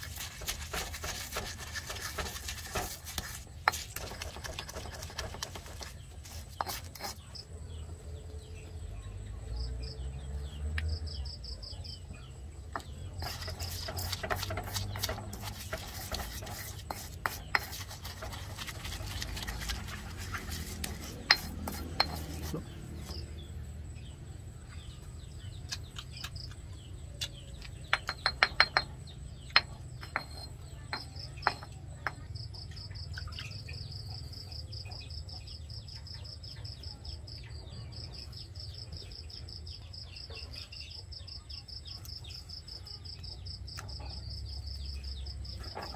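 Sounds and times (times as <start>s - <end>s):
pestle grinding in stone mortar: 0.0s - 7.4s, 12.7s - 23.3s, 25.7s - 32.4s
pestle knocking: 12.7s - 22.7s, 27.6s - 32.3s.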